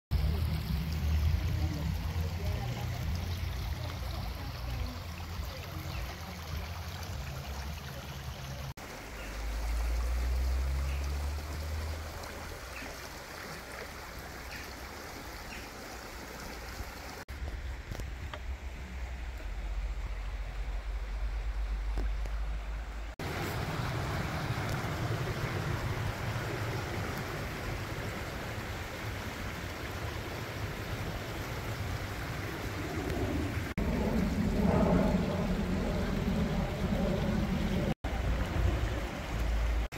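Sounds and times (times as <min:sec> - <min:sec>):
stream running over stones: 0:00.1 - 0:39.9
low microphone rumble: 0:32.7 - 0:39.9.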